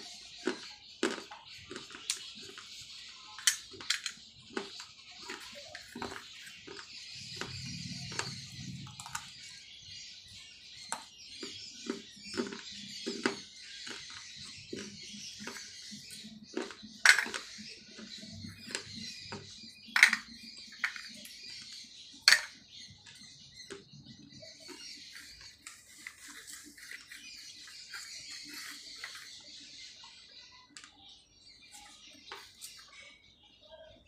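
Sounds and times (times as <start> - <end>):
clay pieces crunching in mouth: 0.0 - 9.4, 10.9 - 21.7.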